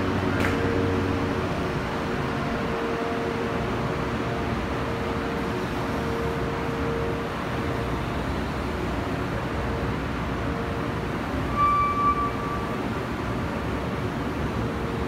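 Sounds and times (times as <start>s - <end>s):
short high tone: 11.5s - 12.8s.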